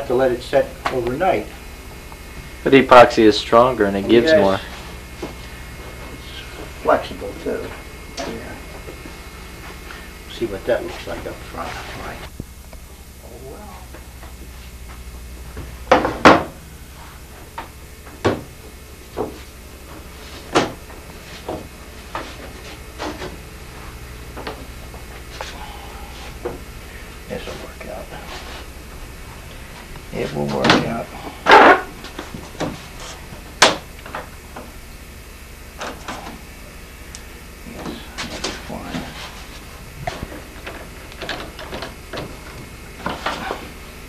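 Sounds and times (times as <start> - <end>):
knocks and clunks of wood and tools: 15.5 - 16.6, 17.6 - 18.5, 19.1 - 23.4, 40.0 - 43.7.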